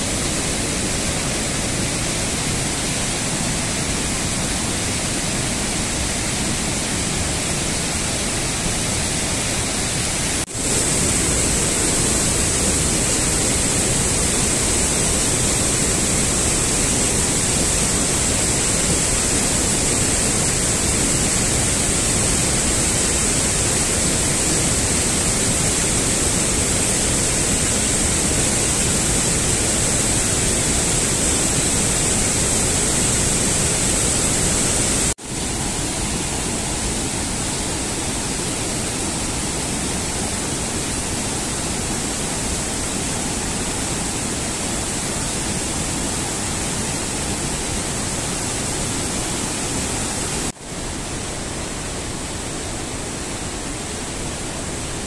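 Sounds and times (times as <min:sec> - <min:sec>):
waterfall rushing: 0:00.0 - 0:55.0.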